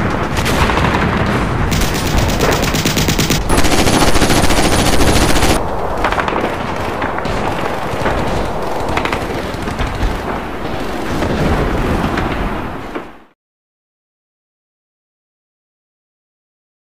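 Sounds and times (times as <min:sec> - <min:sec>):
explosions: 0:00.1 - 0:13.1
machine-gun burst: 0:00.4 - 0:11.2.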